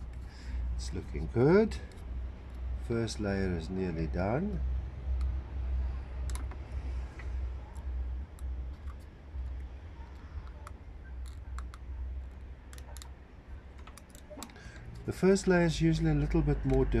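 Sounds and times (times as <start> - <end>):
low steady rumble: 0.0 - 17.0
light clicks of wire pressed: 6.2 - 17.0.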